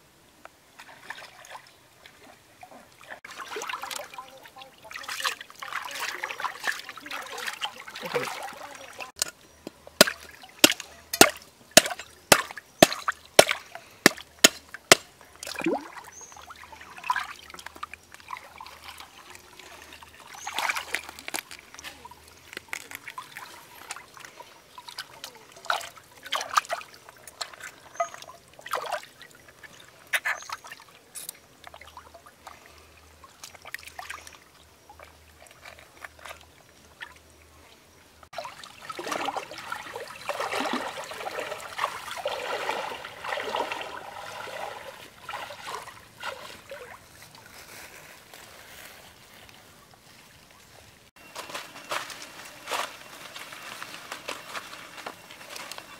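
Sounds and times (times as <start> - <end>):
stream water splashing: 0.7 - 9.3, 10.0 - 55.9
hands washing chicken in water: 38.4 - 47.0.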